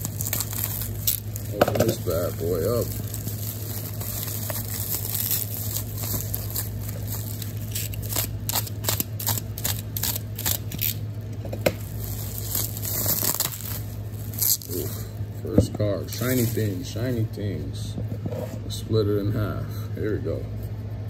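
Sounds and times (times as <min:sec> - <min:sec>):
knife cutting and tearing plastic: 0:00.0 - 0:15.0, 0:16.1 - 0:16.8
bubble wrap crinkling: 0:00.0 - 0:15.2, 0:15.8 - 0:17.2.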